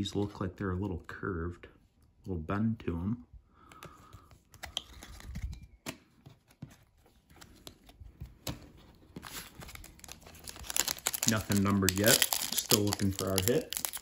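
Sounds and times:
cards tapping and clicking: 3.6s - 6.8s
soft card rustles: 3.6s - 14.0s.

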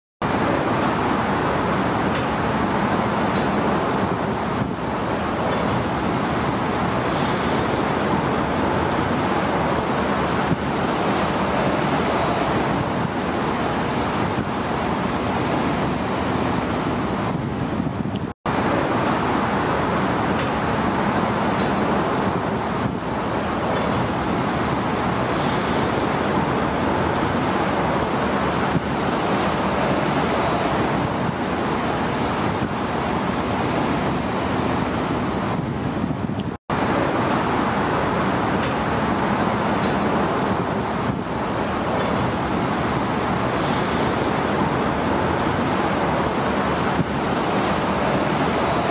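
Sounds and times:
harbour water: 0.2s - 48.9s
road traffic: 0.2s - 48.9s.

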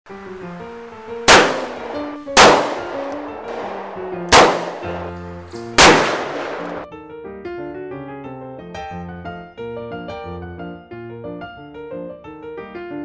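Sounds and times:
ragtime piano music: 0.1s - 13.0s
handgun shots ringing: 1.3s - 6.9s.

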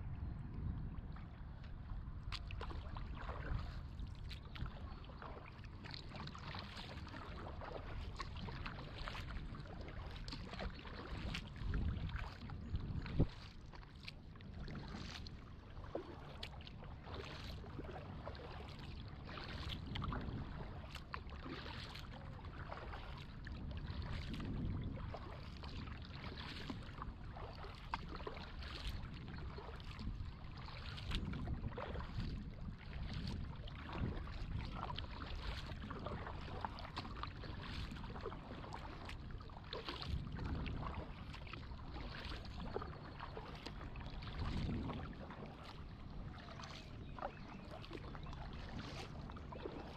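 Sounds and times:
steady low rumble: 0.0s - 5.4s
kayak paddle strokes in water: 1.1s - 49.9s
water dripping from paddle: 2.3s - 15.2s, 15.9s - 23.2s, 25.1s - 32.1s, 33.1s - 49.9s.

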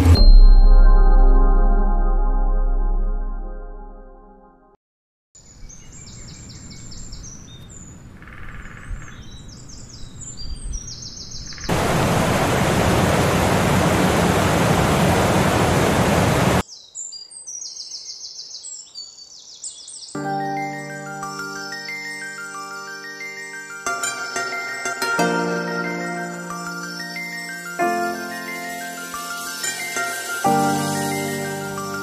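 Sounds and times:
songbirds singing: 5.4s - 11.8s, 16.6s - 25.0s
water rushing over rocks: 11.7s - 16.6s.

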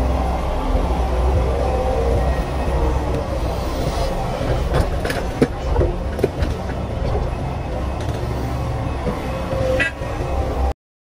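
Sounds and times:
excavator diesel engine running: 0.0s - 10.8s
sharp knocks and clatters: 4.5s - 8.3s.

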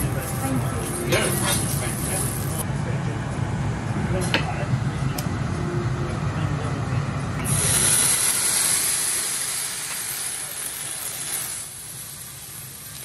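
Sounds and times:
flambe flaring up with hiss: 7.4s - 13.0s.

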